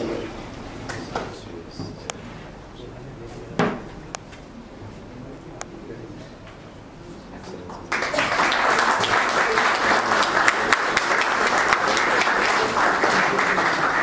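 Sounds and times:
audience applauding: 7.4 - 14.0.

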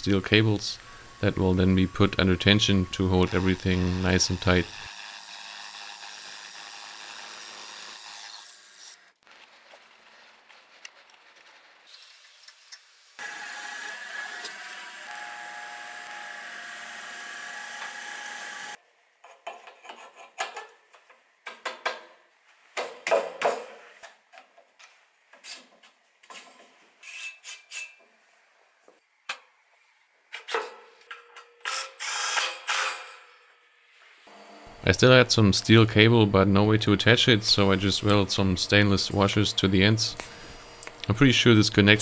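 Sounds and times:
drill boring into steel: 0.8 - 9.0, 13.2 - 18.8
metal scrapes: 26.3 - 28.0.

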